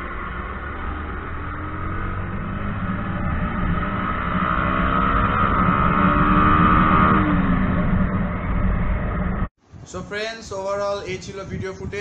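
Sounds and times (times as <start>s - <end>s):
motorcycle engine accelerating: 0.0s - 9.5s.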